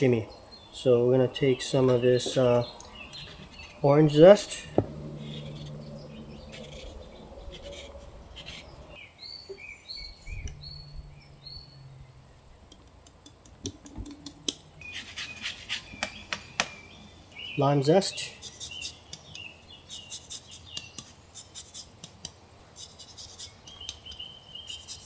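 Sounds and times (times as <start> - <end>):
faint low hum: 0.0 - 17.7
bird chirping: 0.0 - 21.8, 22.8 - 25.0
zester scraping orange peel: 3.2 - 4.0, 5.1 - 8.8.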